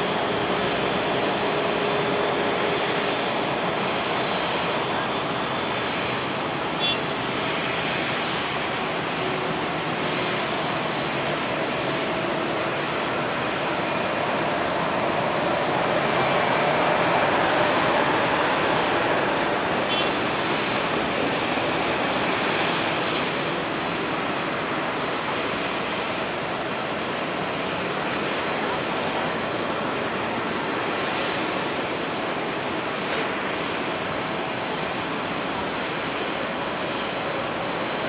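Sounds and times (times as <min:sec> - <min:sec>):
jet engines on approach: 0:00.0 - 0:38.0.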